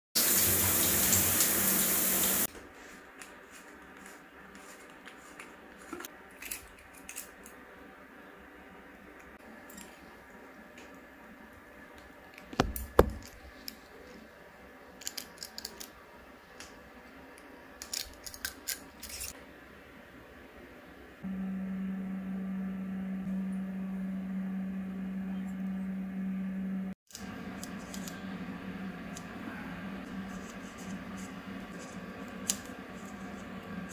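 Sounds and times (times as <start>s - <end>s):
steady low hum: 19.6s - 33.9s.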